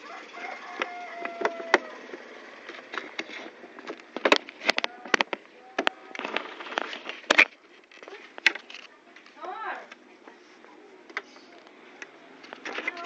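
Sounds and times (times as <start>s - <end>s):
plastic panels clicking and knocking: 2.7s - 8.8s.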